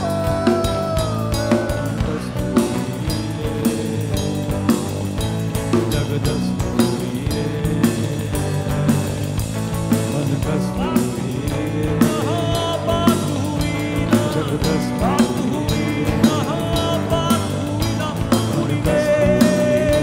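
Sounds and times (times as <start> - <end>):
drum hits: 0.0 - 20.0
man singing: 0.0 - 20.0
rock band playing live: 0.0 - 20.0.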